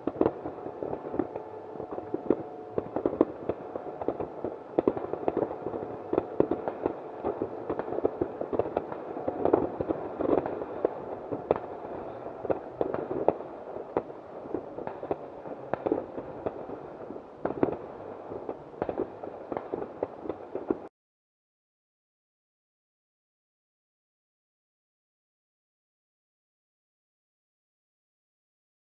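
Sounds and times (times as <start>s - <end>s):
fireworks crackling and banging: 0.0s - 20.9s.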